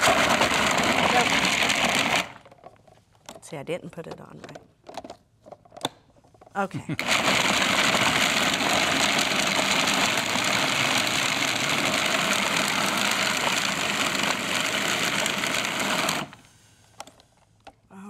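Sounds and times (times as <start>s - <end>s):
food processor motor running: 0.0s - 2.5s, 7.0s - 16.5s.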